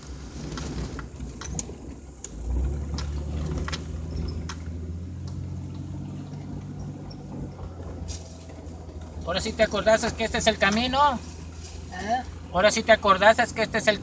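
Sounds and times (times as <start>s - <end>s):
vehicle jolting clicks and knocks: 0.0s - 12.5s
vehicle engine humming: 0.0s - 14.0s.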